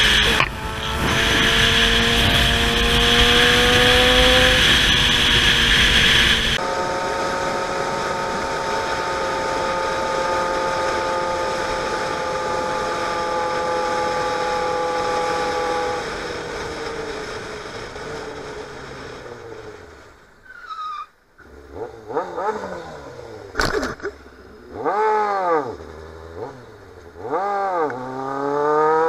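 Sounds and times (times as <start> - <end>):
wind rushing over helmet: 0.0 - 9.4
motorcycle engine whine: 0.0 - 29.0.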